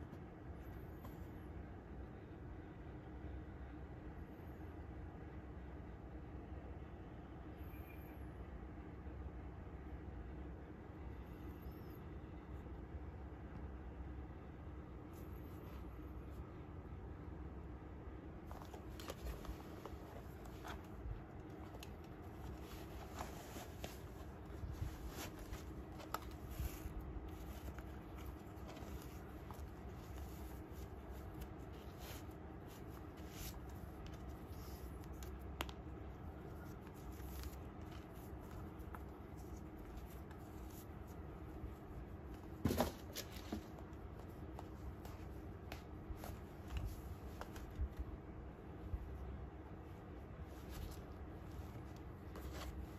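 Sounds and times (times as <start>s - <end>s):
steady low hum: 0.0s - 52.9s
shoe and laces rustling: 18.4s - 48.1s, 50.4s - 52.9s.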